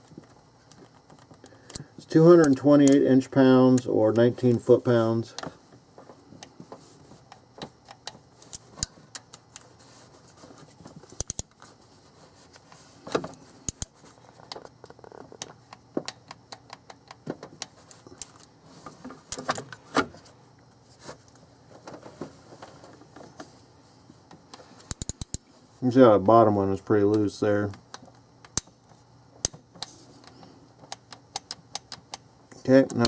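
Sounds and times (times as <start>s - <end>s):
wrench clicking on bolts: 11.2s - 11.5s, 24.9s - 25.4s.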